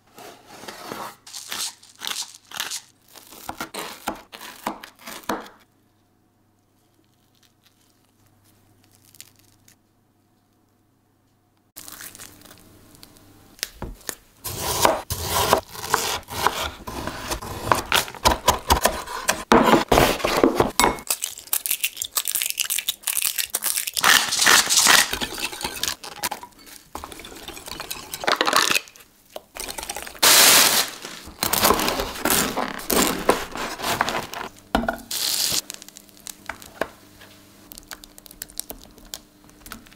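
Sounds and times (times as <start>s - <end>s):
bread knife sawing crusty bread: 14.4s - 20.5s.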